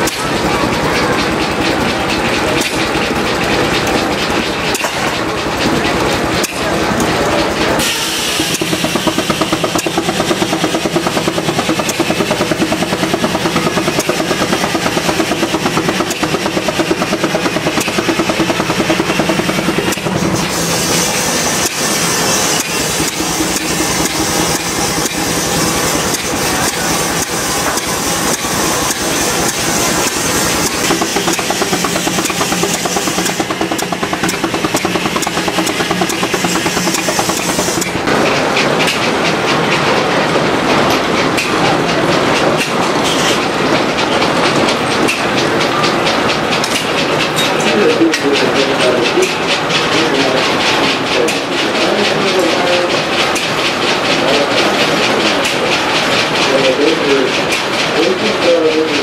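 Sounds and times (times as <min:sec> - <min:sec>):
steam engine exhaust chuffs: 0:00.0 - 0:59.0
steady high steam hiss: 0:07.8 - 0:13.1, 0:19.6 - 0:38.0.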